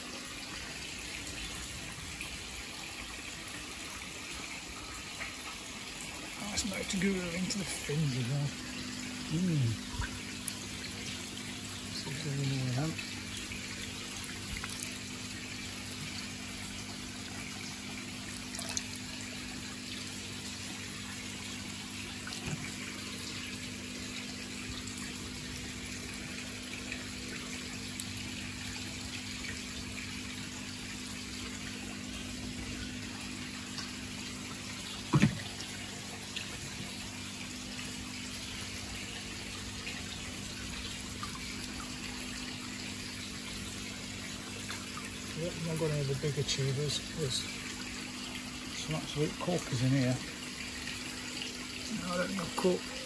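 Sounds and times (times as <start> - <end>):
water running and splashing: 0.0 - 53.0.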